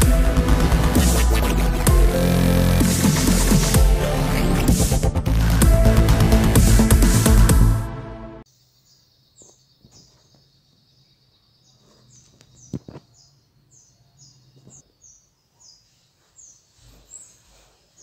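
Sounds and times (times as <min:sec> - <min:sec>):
small bird chirping: 0:08.5 - 0:18.0.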